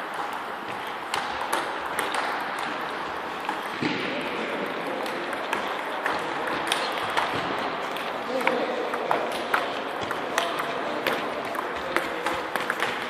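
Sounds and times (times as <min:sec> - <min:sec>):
sports hall background noise: 0:00.0 - 0:13.0
table tennis balls clicking: 0:00.0 - 0:13.0.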